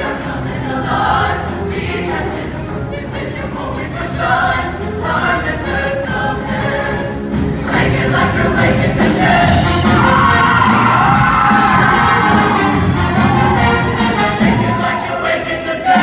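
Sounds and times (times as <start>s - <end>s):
choir singing: 0.0s - 16.0s
live band: 9.1s - 14.8s.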